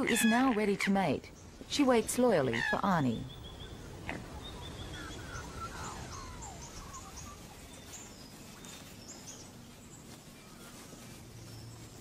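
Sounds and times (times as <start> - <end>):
birds warbling and chirping: 0.0 - 11.1.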